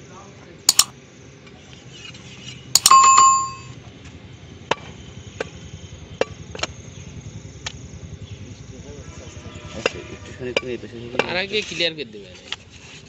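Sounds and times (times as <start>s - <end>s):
metallic clank: 0.7s - 0.9s, 2.8s - 3.7s.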